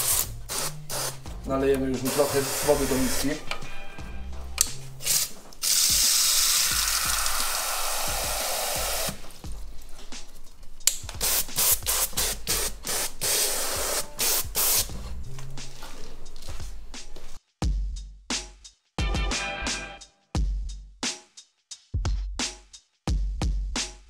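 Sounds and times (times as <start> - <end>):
water spraying from hose nozzle: 5.0 - 9.5.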